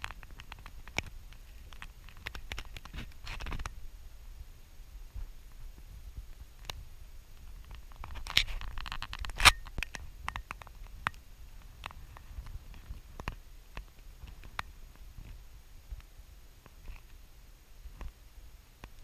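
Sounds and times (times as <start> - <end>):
camera handling clicks and rustles: 0.0 - 3.8, 7.7 - 11.2
sharp loud click: 9.2 - 10.4.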